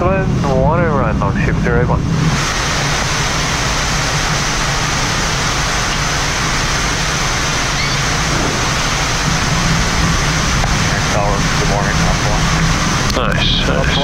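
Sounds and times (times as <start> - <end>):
airflow rushing in cockpit: 0.0 - 14.0
low hum: 0.0 - 14.0.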